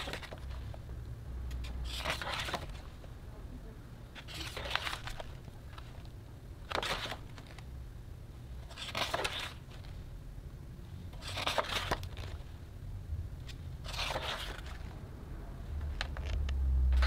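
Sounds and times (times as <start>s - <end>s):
book pages turning: 0.0s - 0.8s, 1.5s - 3.0s, 4.2s - 7.7s, 8.6s - 10.0s, 11.2s - 12.5s, 13.4s - 15.0s, 15.8s - 17.0s.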